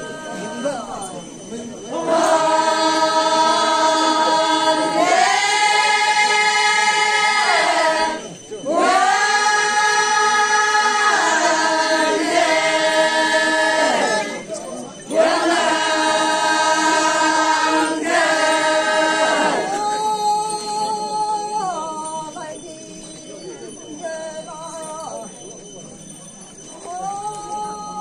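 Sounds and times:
women singing unaccompanied: 1.9s - 14.4s.

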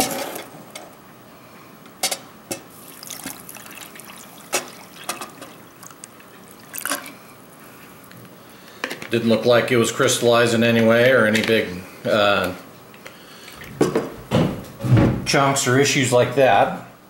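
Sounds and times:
water pouring into metal cup: 2.8s - 7.2s.

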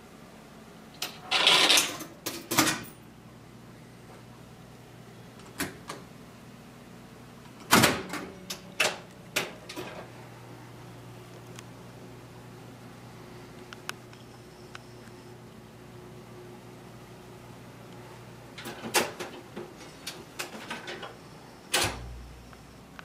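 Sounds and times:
low steady hum: 0.0s - 23.0s
coins clinking into coin mechanism: 1.0s - 3.0s.

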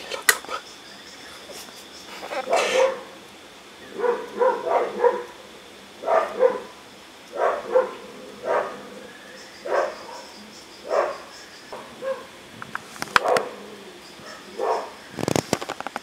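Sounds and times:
dog barking: 2.2s - 3.2s, 3.9s - 5.4s, 6.0s - 9.0s, 9.6s - 12.4s, 13.2s - 13.6s, 14.2s - 15.0s.

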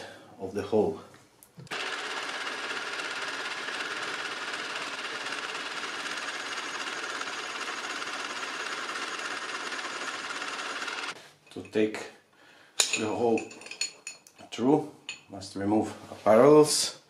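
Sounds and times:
drill boring into metal: 1.7s - 11.2s.

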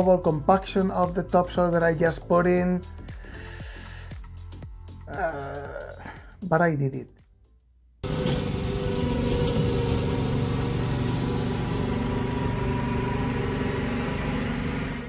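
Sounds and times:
small engine running: 8.0s - 15.0s.

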